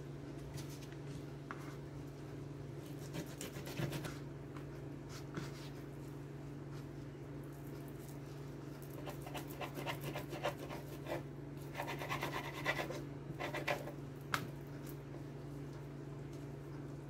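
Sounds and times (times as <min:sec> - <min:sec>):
knife sawing through bacon: 0:09.0 - 0:13.9.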